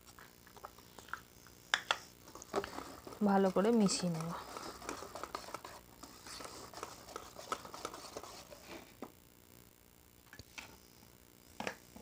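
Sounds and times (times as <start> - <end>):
utensil tapping and scraping bowl: 2.5 - 8.6.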